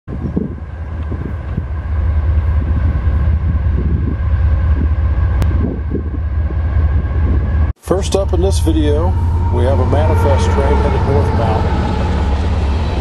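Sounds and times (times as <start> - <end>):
locomotive rumbling past: 0.1 - 13.0.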